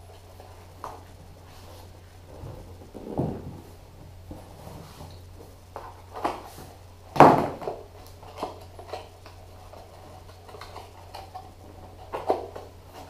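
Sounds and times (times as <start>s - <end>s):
faint low hum: 0.0s - 13.0s
boxes knocking on hard surface: 2.9s - 3.8s.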